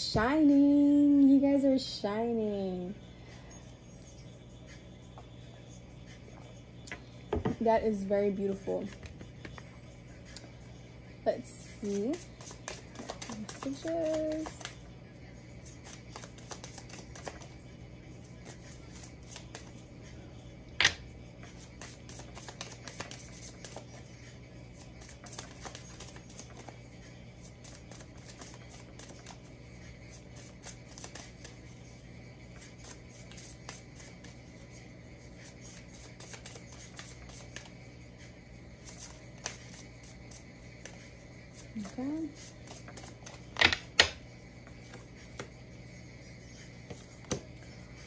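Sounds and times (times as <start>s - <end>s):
cards shuffling clicks: 11.8s - 14.8s, 15.6s - 17.5s, 18.4s - 19.8s, 21.6s - 24.0s, 24.8s - 26.7s, 27.4s - 29.4s, 30.1s - 31.6s, 35.4s - 37.7s, 38.8s - 41.0s, 42.4s - 44.2s.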